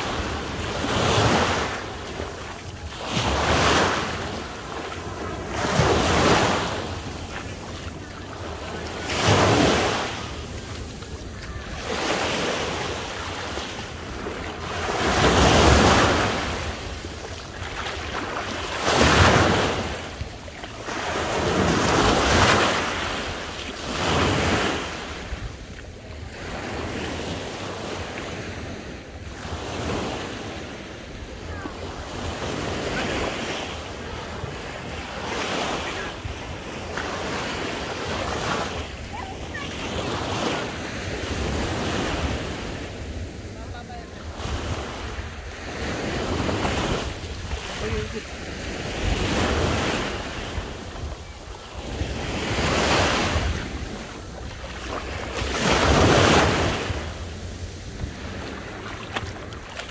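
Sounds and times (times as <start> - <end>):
sea waves breaking on shore: 0.0 - 59.9.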